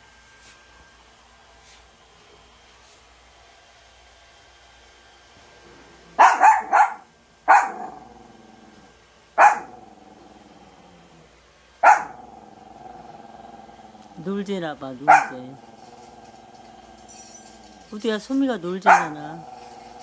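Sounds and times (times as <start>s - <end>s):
small dog barking: 6.2s - 8.0s, 9.4s - 9.8s, 11.8s - 12.3s, 15.0s - 15.6s, 18.8s - 19.8s.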